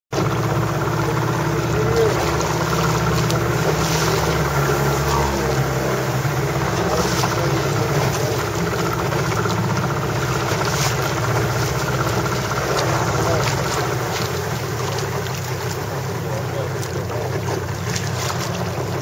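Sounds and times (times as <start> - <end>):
boat engine running: 0.1 - 19.0.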